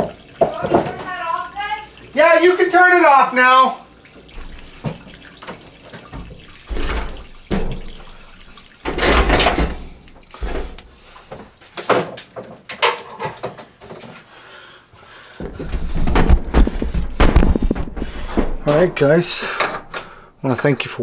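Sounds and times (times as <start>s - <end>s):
handling knocks and clunks: 8.8s - 14.1s, 15.4s - 20.1s.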